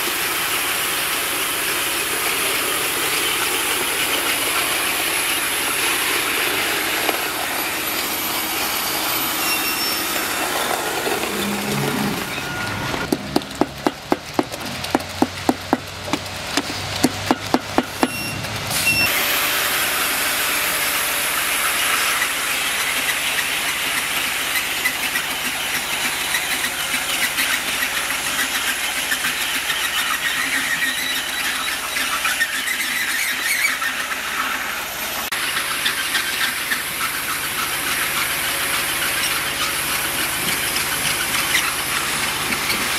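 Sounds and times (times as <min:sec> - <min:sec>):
roller screed hissing: 0:00.0 - 0:42.9
sharp knocks: 0:13.0 - 0:18.2.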